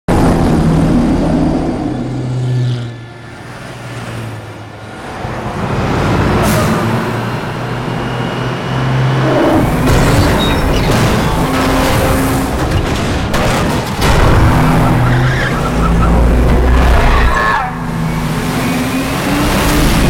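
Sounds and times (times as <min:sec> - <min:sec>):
vehicle engines and road noise: 0:00.1 - 0:20.0.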